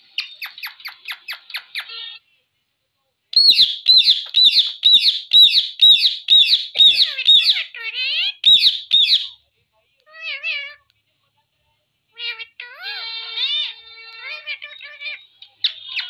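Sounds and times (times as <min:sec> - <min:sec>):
parakeet chirping: 0:00.2 - 0:02.2, 0:03.3 - 0:09.4
parakeet warbling call: 0:03.4 - 0:09.4.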